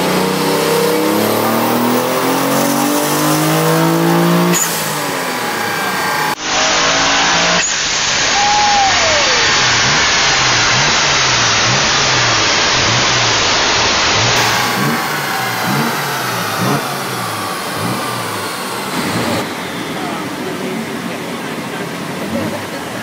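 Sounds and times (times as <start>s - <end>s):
car engine revving: 0.0s - 23.0s
falling whine: 0.0s - 23.0s
loud steady rushing noise: 0.0s - 23.0s.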